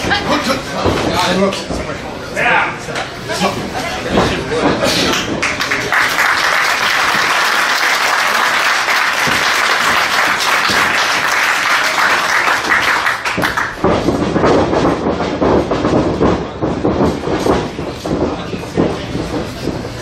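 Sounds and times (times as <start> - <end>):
crowd applauding and cheering: 5.1 - 13.8
crowd rhythmic pulsing beat: 6.7 - 20.0.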